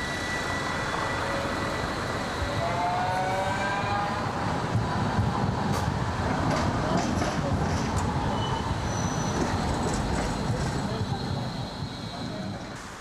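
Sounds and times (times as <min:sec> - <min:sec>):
electric tram whine: 0:00.0 - 0:07.0
wheels rumbling on rails: 0:01.2 - 0:13.0.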